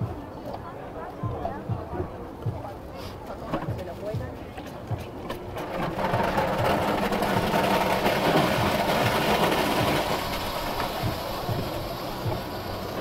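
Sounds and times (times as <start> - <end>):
machine hum: 5.3 - 13.0.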